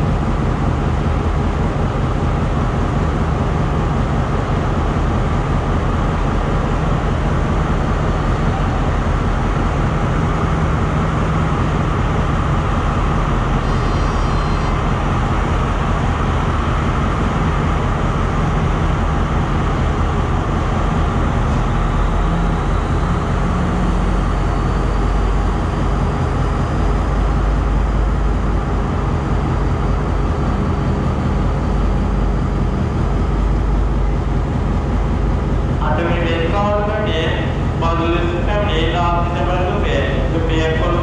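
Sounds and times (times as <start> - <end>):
diesel train engines idling: 0.0 - 41.0.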